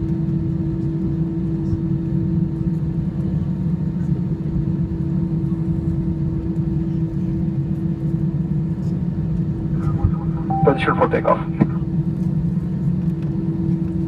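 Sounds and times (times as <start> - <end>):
aircraft engines rumbling: 0.0 - 14.0
steady hum tone: 9.6 - 12.4.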